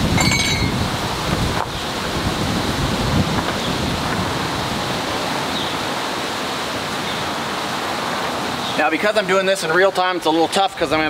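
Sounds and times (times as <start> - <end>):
wind blowing across microphone: 0.0 - 8.8.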